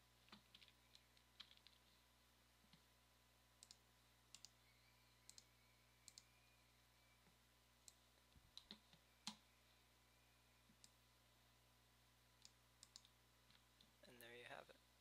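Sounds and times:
computer mouse clicks: 0:00.2 - 0:01.9, 0:03.6 - 0:06.4, 0:07.8 - 0:09.4, 0:12.4 - 0:13.9.

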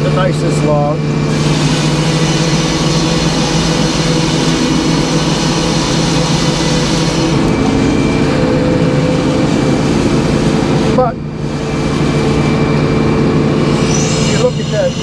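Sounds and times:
saw power unit hum: 0:00.0 - 0:15.0.

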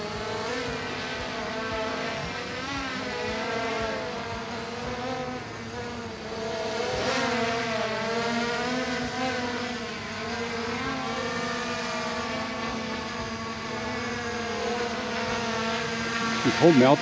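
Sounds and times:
quadcopter propeller whine: 0:00.0 - 0:17.0.

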